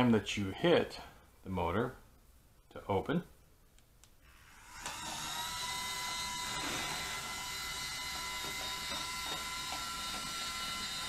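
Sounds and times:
curtain motor whine: 0:04.3 - 0:11.0.

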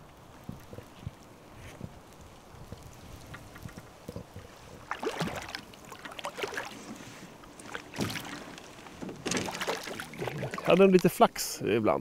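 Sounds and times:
fish splashing in water: 0:03.5 - 0:11.0.

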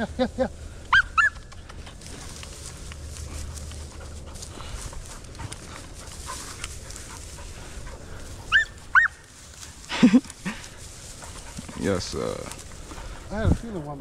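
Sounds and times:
dry grass rustling: 0:00.0 - 0:14.0
low rumble of wind: 0:00.0 - 0:14.0
dog high-pitched cries: 0:00.9 - 0:01.4, 0:08.5 - 0:09.2.

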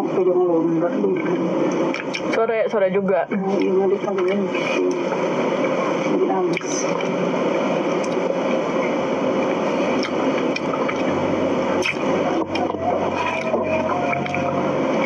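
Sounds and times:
steady rushing noise: 0:00.0 - 0:15.0
mouth clicks and lip smacks: 0:01.7 - 0:02.3, 0:10.0 - 0:11.1, 0:11.8 - 0:14.5.

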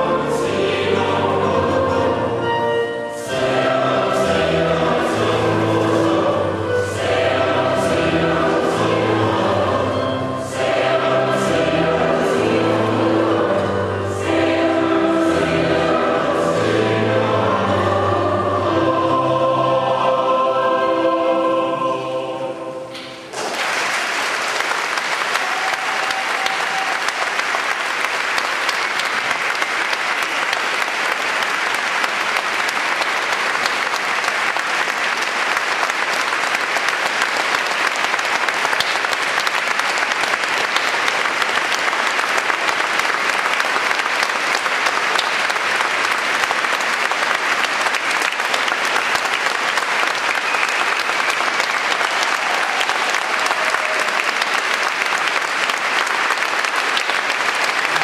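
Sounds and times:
choir singing: 0:00.0 - 0:23.3
audience applause: 0:23.3 - 0:58.0.

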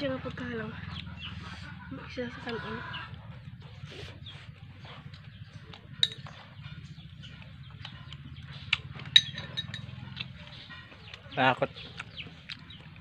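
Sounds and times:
low steady hum: 0:00.0 - 0:10.5
metal spoons clinking against dishes: 0:06.0 - 0:06.4, 0:09.1 - 0:10.3.

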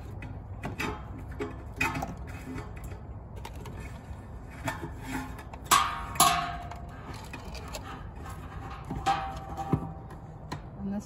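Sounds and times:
sharp metallic clanks: 0:05.6 - 0:10.2.

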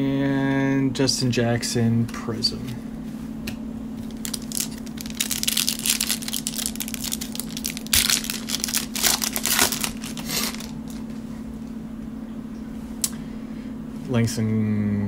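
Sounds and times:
plastic wrapper crinkling and tearing: 0:04.0 - 0:11.2.

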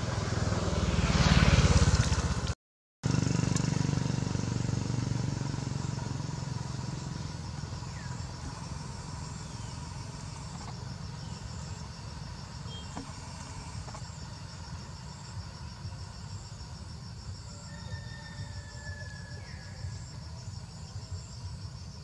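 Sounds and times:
motorcycle riding away: 0:00.0 - 0:21.8
low traffic rumble: 0:00.0 - 0:22.0
insects chirping: 0:04.6 - 0:22.0.

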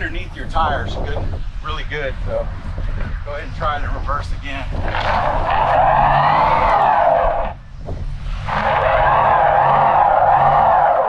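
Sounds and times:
engine revving: 0:04.3 - 0:11.0
wheels spinning in sand: 0:04.7 - 0:11.0.

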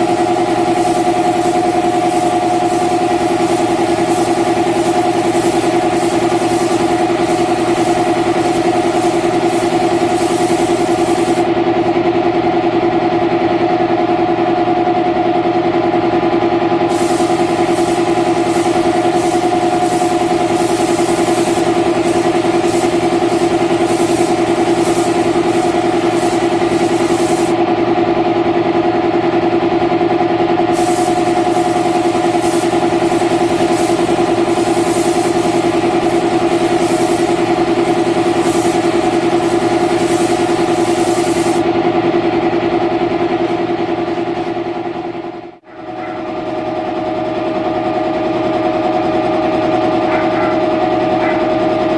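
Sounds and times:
spray gun air hiss: 0:00.0 - 0:11.5, 0:16.9 - 0:27.6, 0:30.6 - 0:41.6
air compressor motor hum: 0:00.0 - 0:51.9.

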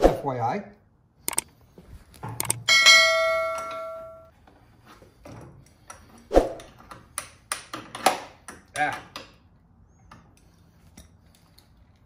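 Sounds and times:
tool handling clicks: 0:01.3 - 0:01.5, 0:02.1 - 0:02.7
metal struck ringing like a bell: 0:02.7 - 0:04.3.

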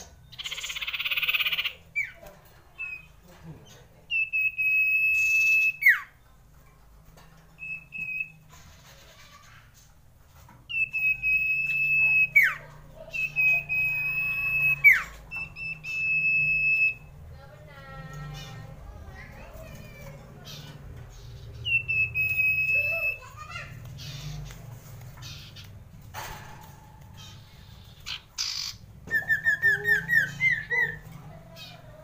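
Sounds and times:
bird chirps: 0:00.0 - 0:03.2, 0:10.7 - 0:17.2, 0:19.6 - 0:26.0, 0:27.1 - 0:32.0
bird whistling: 0:04.1 - 0:06.1, 0:10.7 - 0:17.1, 0:21.6 - 0:23.3, 0:28.0 - 0:31.1.

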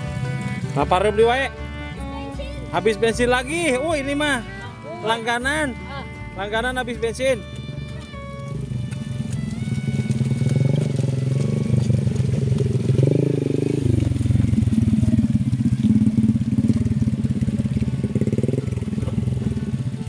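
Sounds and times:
small motorcycle engine under load: 0:06.4 - 0:20.0.

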